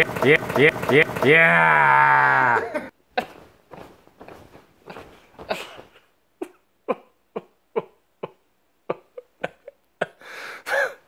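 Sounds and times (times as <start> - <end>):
person's sharp bursts of breath: 10.2 - 11.0.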